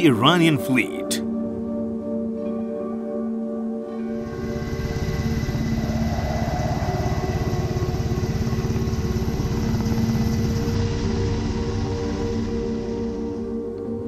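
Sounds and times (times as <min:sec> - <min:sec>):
helicopter rotor chopping: 0:04.2 - 0:13.1.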